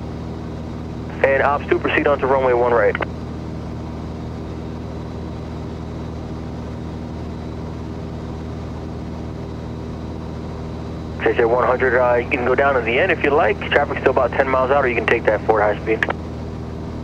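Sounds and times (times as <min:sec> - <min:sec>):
propeller plane engine idling: 0:00.1 - 0:17.0.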